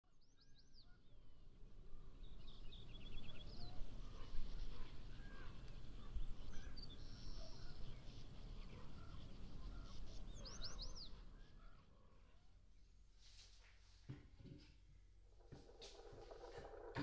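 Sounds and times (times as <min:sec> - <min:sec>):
birds chirping and calling: 0:03.3 - 0:12.4, 0:15.4 - 0:17.0
low outdoor rumble: 0:12.4 - 0:17.0.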